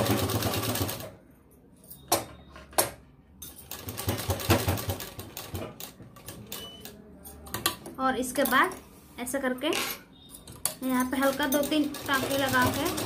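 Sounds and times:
sewing machine stitching: 10.8 - 13.0.

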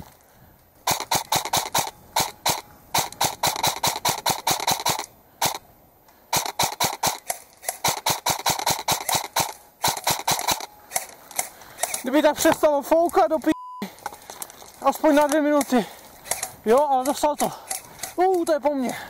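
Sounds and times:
airsoft rifle firing bursts: 0.8 - 5.6, 6.3 - 12.3.

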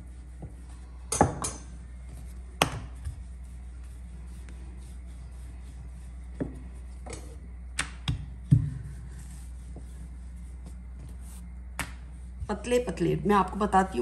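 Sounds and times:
low hum: 0.0 - 14.0
rolling pin working dough: 0.0 - 14.0.

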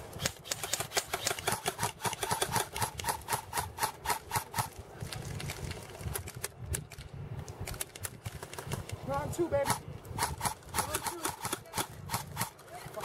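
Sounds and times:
airsoft guns firing: 0.2 - 4.7, 9.6 - 12.6.

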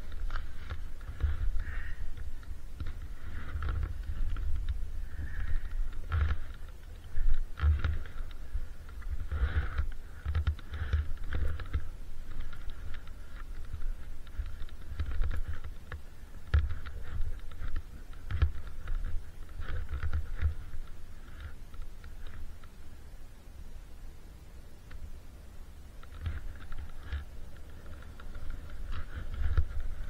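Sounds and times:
small clicks: 0.0 - 22.9, 25.8 - 30.0
wind buffeting microphone: 0.0 - 23.0.

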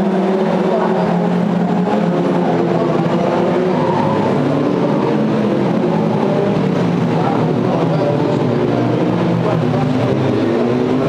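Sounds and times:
race cars driving past: 0.0 - 11.0.

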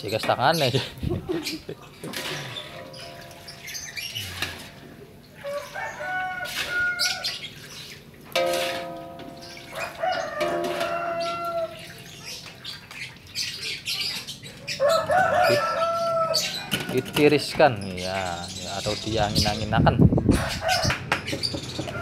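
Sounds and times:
chickens calling: 0.0 - 22.0
metal strainer clinking against wok: 8.4 - 11.4.

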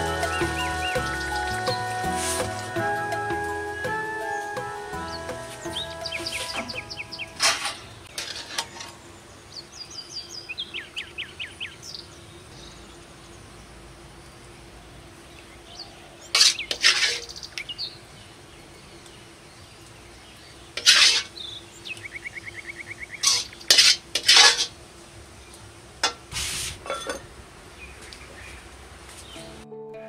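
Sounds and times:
metal utensils clinking on cookware: 7.4 - 9.0, 20.8 - 21.3, 23.2 - 24.8, 26.8 - 27.3.

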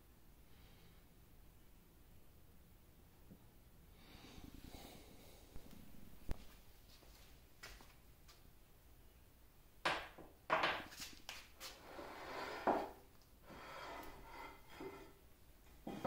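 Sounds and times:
metal scraping slide: 13.5 - 15.2.

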